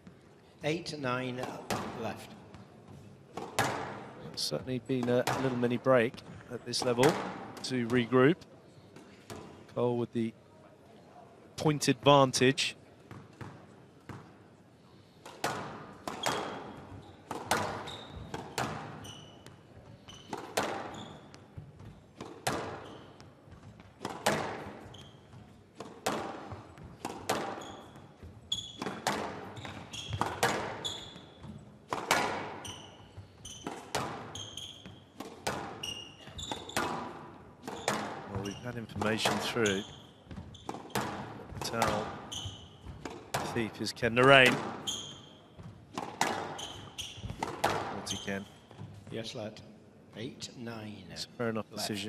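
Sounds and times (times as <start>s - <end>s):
court shoes squeaking: 1.2s - 9.7s, 13.0s - 49.2s
squash ball hitting racket and wall: 1.4s - 2.2s, 3.3s - 4.2s, 5.0s - 5.7s, 6.8s - 8.0s, 15.2s - 43.7s, 44.4s - 49.0s.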